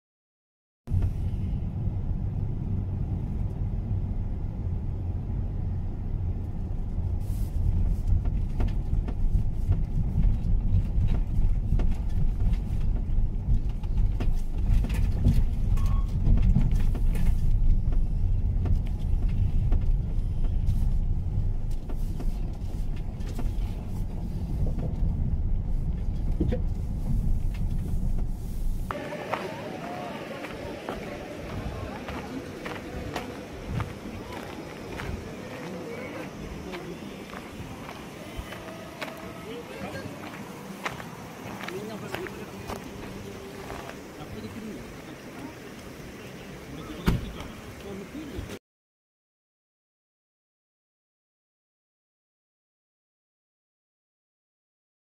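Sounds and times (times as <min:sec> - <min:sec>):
tyres and engine rumbling: 0:00.9 - 0:48.6
gravel ticking: 0:06.4 - 0:48.0.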